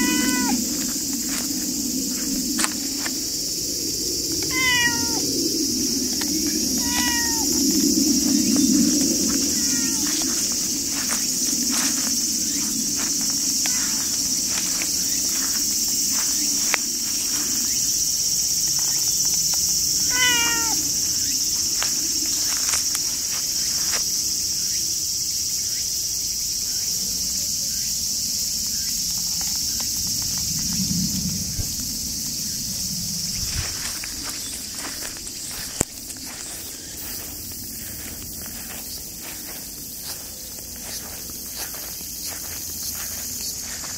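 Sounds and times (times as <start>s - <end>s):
cat meowing: 0.0s - 0.7s, 4.5s - 5.2s, 6.8s - 7.6s, 9.4s - 10.2s, 20.1s - 20.9s
rustles in grass: 0.0s - 3.7s, 5.8s - 19.1s, 20.0s - 24.3s, 31.4s - 43.9s
insects droning: 0.0s - 43.9s.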